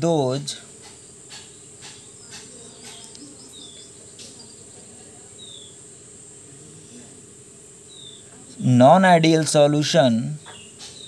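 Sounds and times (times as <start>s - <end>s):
high-pitched background whine: 0.0s - 11.0s.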